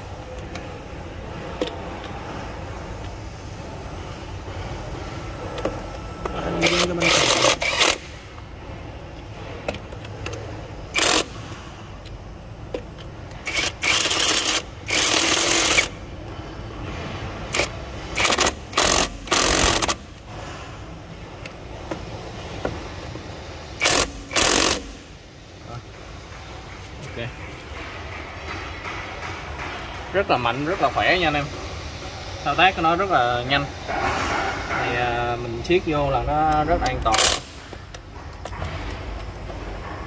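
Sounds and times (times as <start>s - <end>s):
cordless impact wrench bursts: 6.6s - 8.2s, 10.9s - 11.7s, 13.4s - 16.0s, 17.5s - 20.1s, 23.8s - 25.1s, 37.1s - 37.7s.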